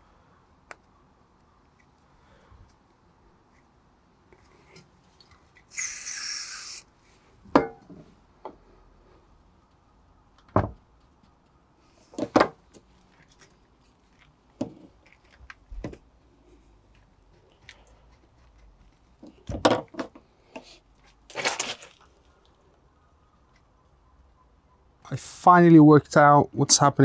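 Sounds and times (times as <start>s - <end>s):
silicone spray hiss: 5.7s - 6.9s.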